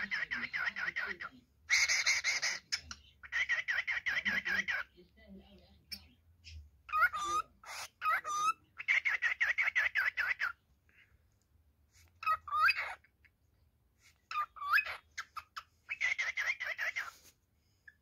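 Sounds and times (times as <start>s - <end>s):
cockatiel chirping: 0.0s - 4.9s, 5.9s - 10.6s, 12.0s - 13.4s, 14.0s - 17.3s.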